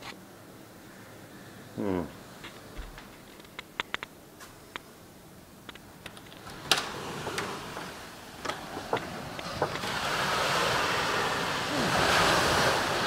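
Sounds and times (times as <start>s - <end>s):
wind: 0.0s - 13.0s
door handle and latch clicks: 5.7s - 9.1s
ocean surf: 5.8s - 13.0s.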